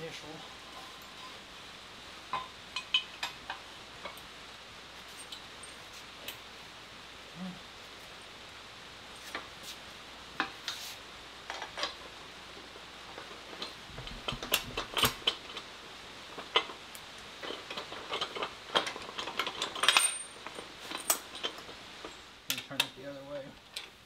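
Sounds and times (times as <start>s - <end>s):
metal parts clinking and knocking: 17.4s - 22.7s.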